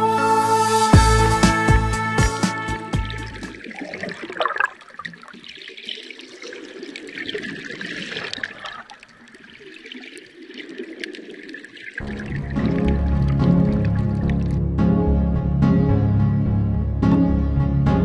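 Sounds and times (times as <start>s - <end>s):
music: 0.0s - 3.6s, 12.0s - 18.0s
underwater water noise: 3.0s - 14.7s.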